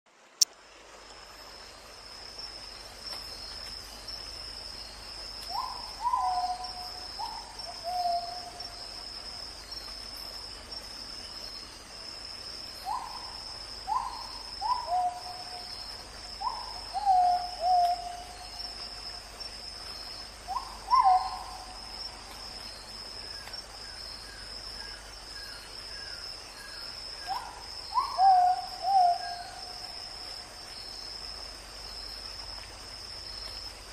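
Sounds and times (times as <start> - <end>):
bird hooting calls: 20.5 - 21.7, 27.3 - 29.7.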